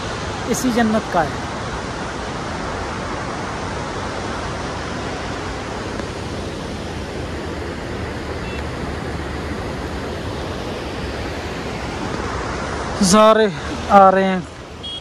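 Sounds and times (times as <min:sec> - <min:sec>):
river and waterfall rushing: 0:00.0 - 0:15.0.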